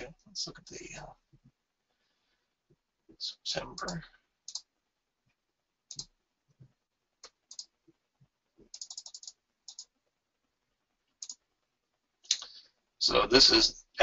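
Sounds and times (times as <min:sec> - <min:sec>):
computer mouse clicks: 0:03.8 - 0:04.7, 0:05.9 - 0:06.1, 0:07.2 - 0:07.7, 0:08.6 - 0:09.9, 0:11.2 - 0:11.4.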